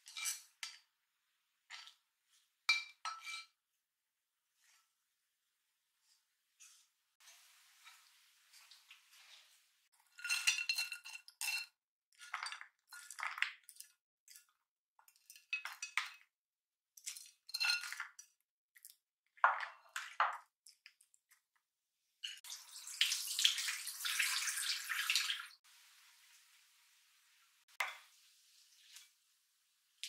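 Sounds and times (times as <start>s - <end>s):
chopsticks scraping a pan: 0.0s - 0.8s, 2.7s - 3.6s, 6.1s - 13.1s.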